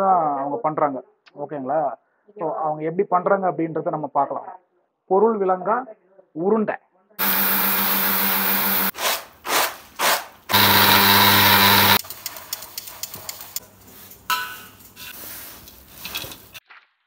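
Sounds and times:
mixer grinder running: 0:07.2 - 0:08.9, 0:10.5 - 0:12.0
soft rattling in steel bowl: 0:12.0 - 0:16.6.

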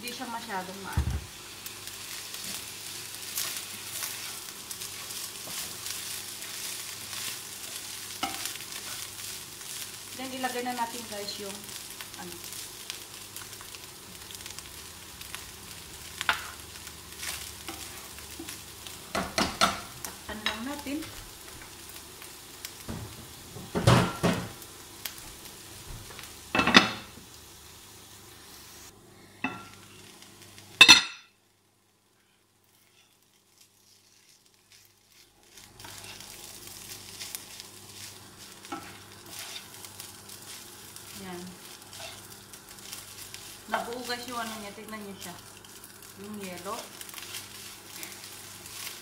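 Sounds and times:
food sizzling in pans: 0:00.0 - 0:49.0
spatula scraping a pan: 0:02.4 - 0:09.4, 0:17.2 - 0:18.6, 0:32.7 - 0:40.7, 0:41.7 - 0:43.6.

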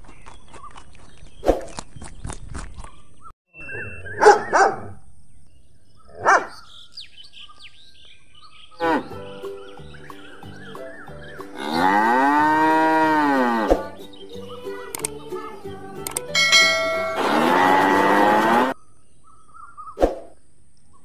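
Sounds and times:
dog yelping: 0:04.2 - 0:04.9
cow mooing: 0:11.5 - 0:13.9, 0:17.1 - 0:18.8.

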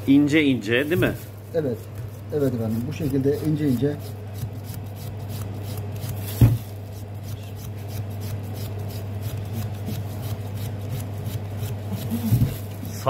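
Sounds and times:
knife shaving meat: 0:00.1 - 0:13.0
thump: 0:06.4 - 0:06.7.

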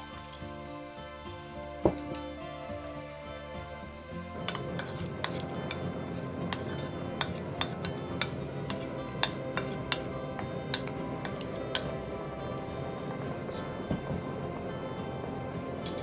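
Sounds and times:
wooden spoon knocking on pot: 0:06.5 - 0:12.0.

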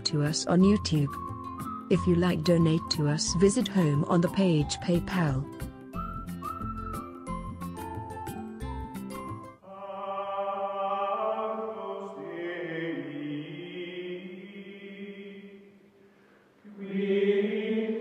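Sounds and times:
choir-like chanted voices: 0:09.6 - 0:15.8, 0:16.6 - 0:18.0.

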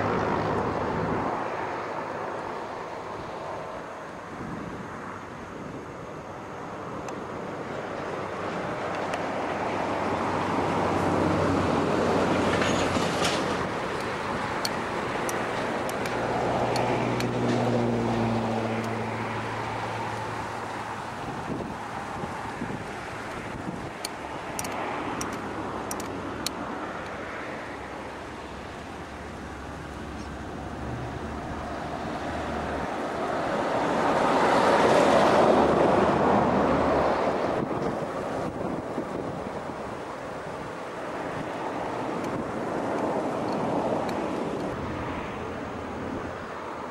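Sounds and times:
jet engines roaring at takeoff: 0:00.0 - 0:46.9.

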